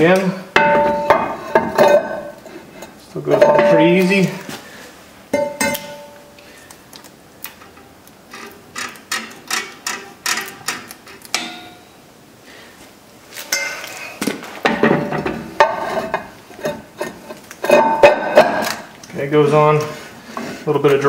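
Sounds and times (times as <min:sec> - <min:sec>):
metal drum scraping and ringing: 0:00.6 - 0:02.4, 0:03.3 - 0:04.1.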